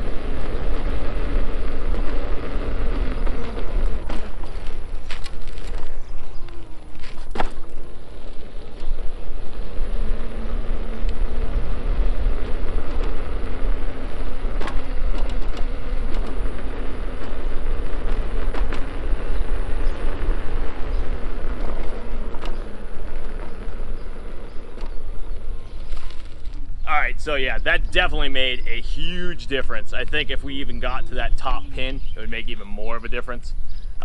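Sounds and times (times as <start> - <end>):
faint motor whine: 0.0 - 34.0
wind and tyre rumble: 0.0 - 34.0.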